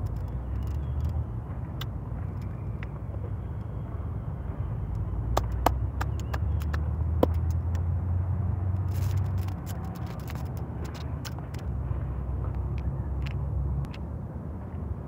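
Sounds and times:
sharp clicks and crackles: 0:00.0 - 0:03.7, 0:04.9 - 0:07.9, 0:08.8 - 0:14.0.

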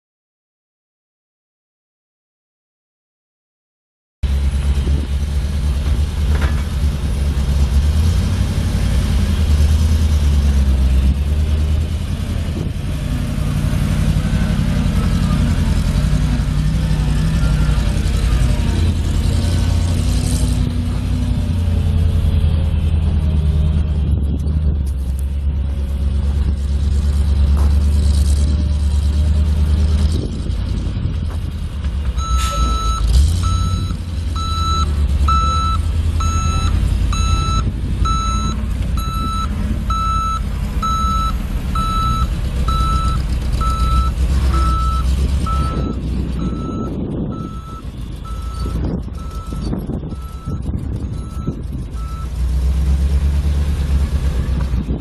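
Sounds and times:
truck engine running: 0:04.2 - 0:55.0
backup alarm beeping: 0:32.2 - 0:50.6.

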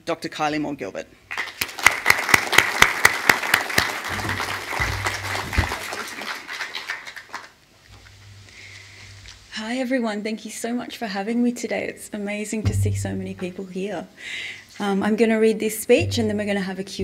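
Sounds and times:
audience applauding: 0:01.3 - 0:07.6
low thump: 0:12.7 - 0:13.4, 0:16.0 - 0:16.6.

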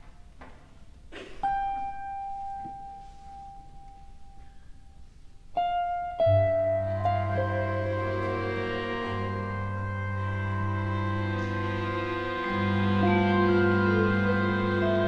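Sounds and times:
low sustained bass note: 0:05.8 - 0:15.0.

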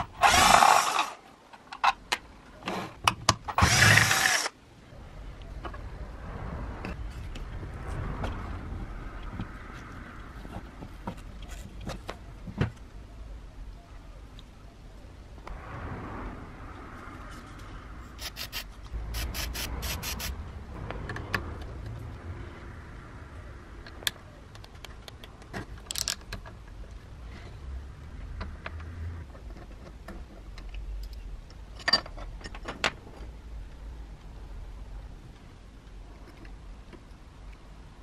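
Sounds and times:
metal clicks and rattles: 0:23.8 - 0:26.9.

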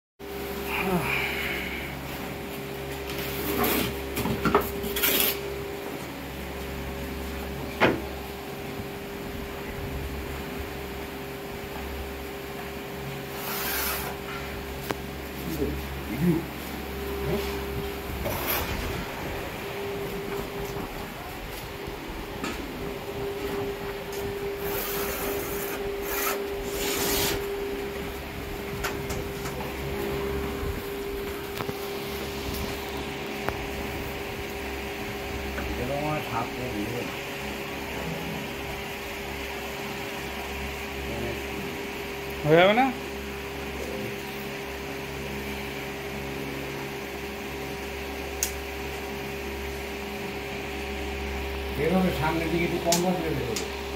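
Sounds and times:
steady mechanical hum: 0:00.2 - 0:53.9
pencil scratching along straightedge: 0:13.4 - 0:14.2.

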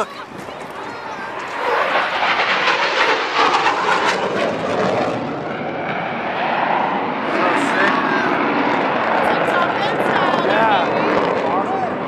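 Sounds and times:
jet aircraft flying past: 0:00.0 - 0:12.0.

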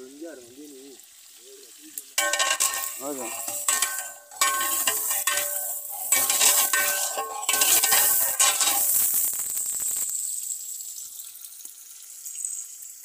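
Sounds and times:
chicken sizzling: 0:00.0 - 0:13.0
pot ringing: 0:02.2 - 0:09.0
metal ladle scraping a pot: 0:02.2 - 0:09.2.

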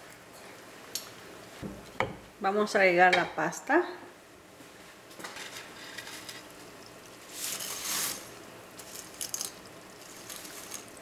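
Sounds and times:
dry spaghetti rustling: 0:05.5 - 0:11.0
spaghetti strands clicking: 0:06.9 - 0:11.0.

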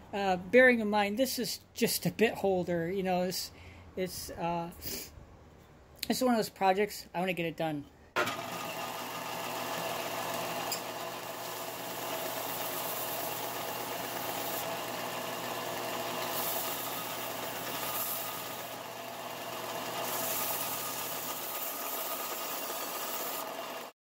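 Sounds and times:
sander motor humming: 0:08.2 - 0:24.0
belt sanding wood: 0:09.6 - 0:23.9.

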